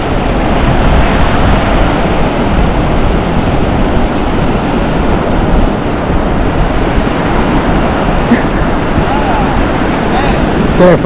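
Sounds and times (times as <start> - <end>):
ocean surf breaking: 0.0 - 11.0
wind on microphone: 0.0 - 11.0.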